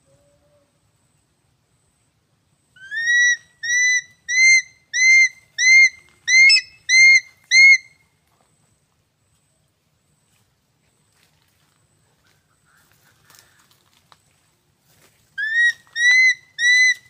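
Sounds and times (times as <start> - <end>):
eagle whistled calls: 2.8 - 8.0, 15.4 - 17.0.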